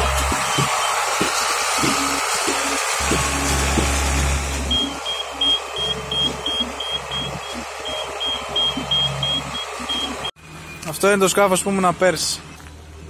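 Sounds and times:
hydraulic trailer running: 0.0s - 12.7s
high warning beeps: 0.3s - 3.5s, 4.7s - 11.1s.

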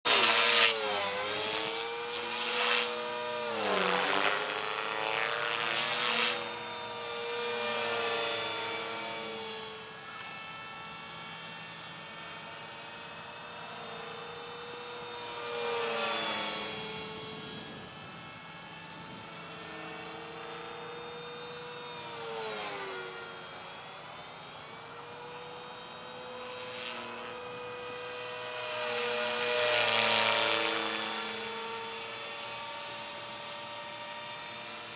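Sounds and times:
model helicopter rotor whine: 0.1s - 34.9s.

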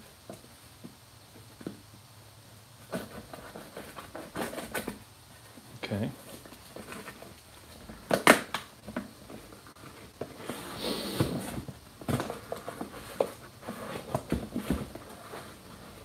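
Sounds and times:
cardboard snaps and knocks: 7.9s - 9.1s.

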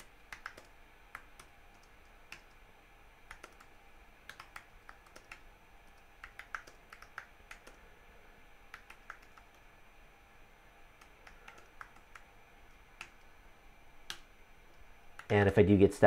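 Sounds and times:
faint typing on keyboard: 0.0s - 2.6s, 3.2s - 8.0s, 8.7s - 9.7s, 11.0s - 13.3s.

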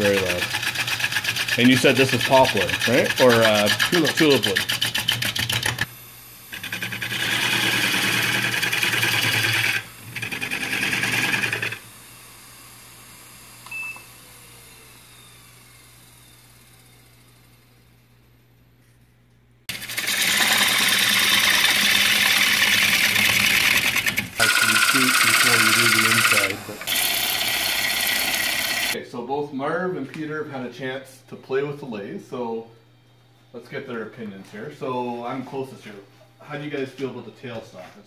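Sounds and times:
lathe gouge shaving wood: 0.0s - 5.9s, 6.5s - 11.9s, 19.7s - 29.0s.

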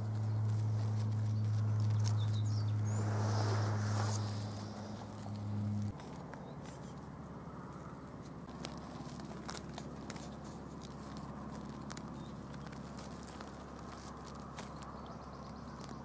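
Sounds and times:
steady low hum: 0.0s - 6.1s
faint clicks and crackles: 0.0s - 16.0s.

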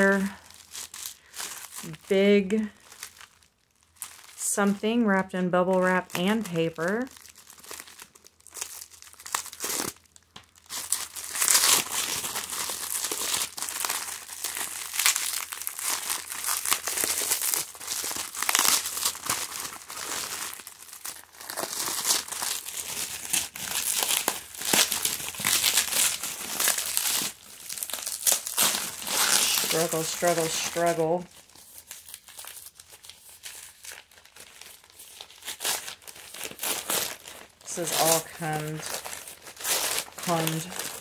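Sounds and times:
bubble wrap and paper crinkling: 0.0s - 41.0s.

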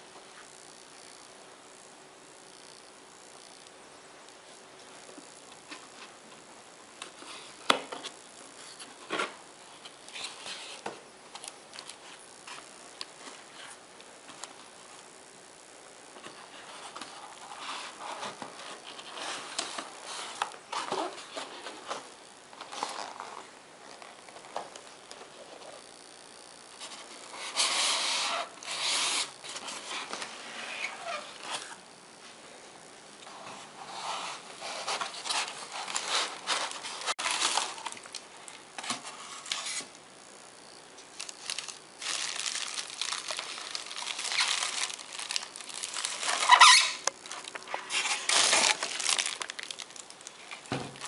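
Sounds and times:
styrofoam scraping rustle: 8.6s - 13.8s, 16.2s - 25.6s, 26.7s - 31.8s, 33.3s - 38.2s, 38.8s - 39.9s, 41.0s - 51.0s
cardboard box rustling: 33.5s - 38.0s, 41.4s - 51.0s.

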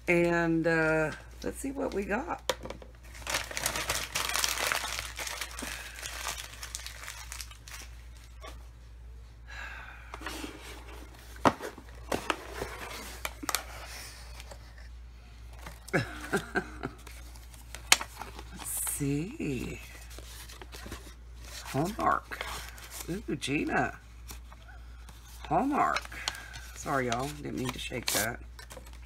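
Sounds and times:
paper packaging tearing and crinkling: 3.1s - 8.4s, 25.6s - 29.0s
tissue paper rustling: 3.1s - 8.4s.

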